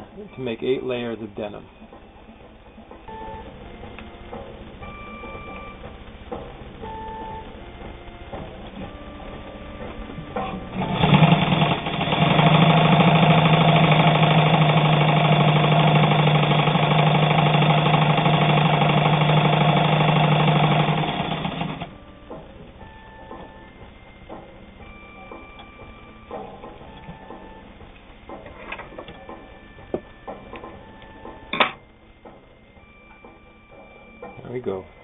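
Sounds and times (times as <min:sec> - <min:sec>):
sewing machine stitching: 0:10.4 - 0:21.9.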